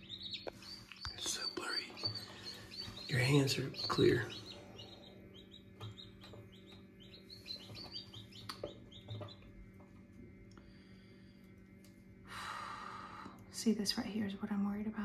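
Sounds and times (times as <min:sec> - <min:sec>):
chick peeping: 0:00.0 - 0:09.6.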